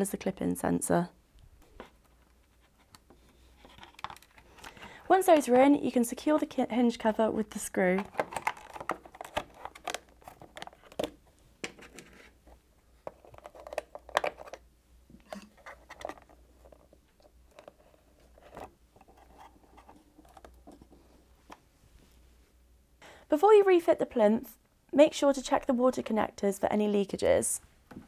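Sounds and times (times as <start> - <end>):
plastic clicks and scrapes: 1.8 - 4.8, 7.9 - 14.6, 15.3 - 16.9.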